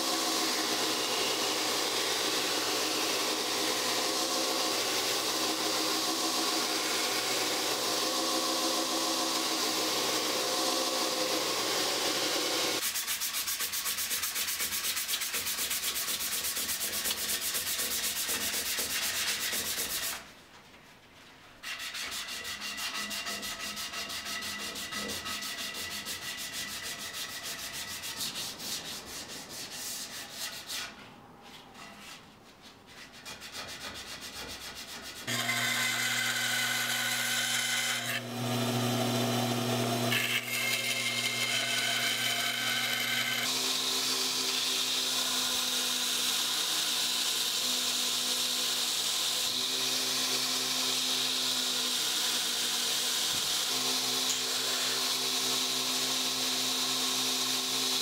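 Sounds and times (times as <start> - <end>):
belt grinder motor running: 0.0 - 12.8, 35.3 - 58.0
sandpaper rubbing on wood: 12.8 - 20.3, 21.6 - 31.0, 31.8 - 35.3.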